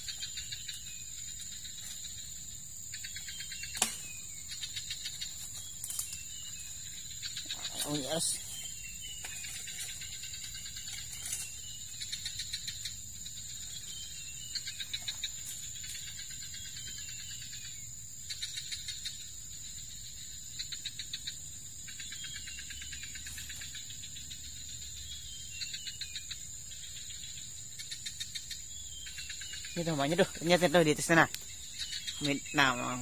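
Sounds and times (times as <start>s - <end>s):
high-pitched insect drone: 0.0s - 33.0s.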